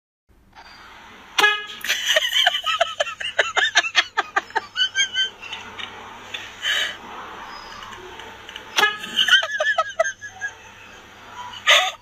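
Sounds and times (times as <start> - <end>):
car horn honk: 1.4 - 2.0, 8.7 - 9.6.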